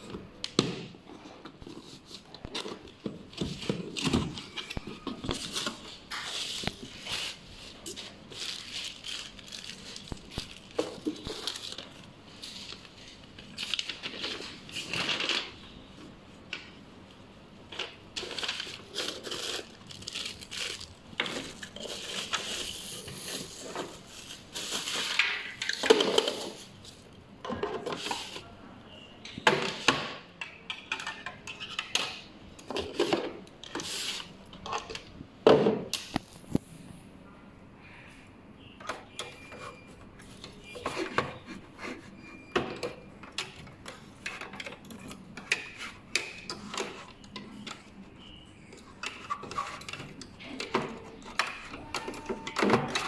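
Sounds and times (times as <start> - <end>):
plastic bags and bubble wrap crinkling: 1.6 - 15.6, 17.7 - 27.1.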